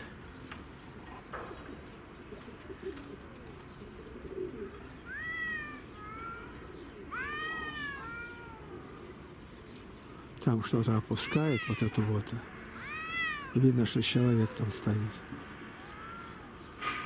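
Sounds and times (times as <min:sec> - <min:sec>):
cat meowing: 0:05.0 - 0:08.9, 0:11.2 - 0:13.7, 0:15.7 - 0:16.7.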